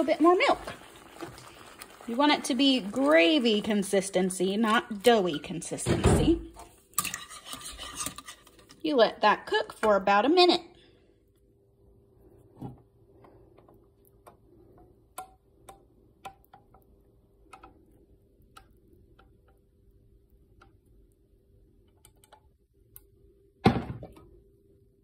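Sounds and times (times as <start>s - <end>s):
gravy pouring into bowl: 0.0s - 5.7s.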